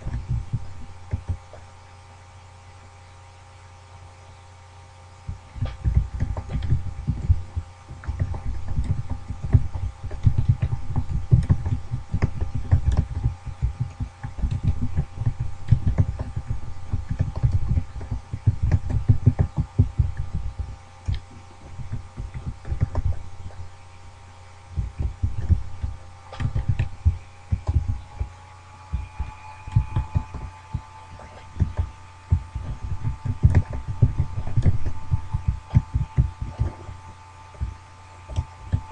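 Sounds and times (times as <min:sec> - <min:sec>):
faint electronic whine: 0:00.0 - 0:38.9
keyboard typing: 0:08.0 - 0:23.2, 0:24.8 - 0:28.0.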